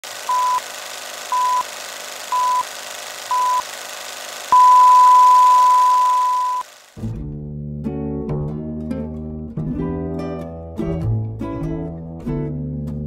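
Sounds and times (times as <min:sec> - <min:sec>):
high countdown beeps: 0:04.6 - 0:06.6.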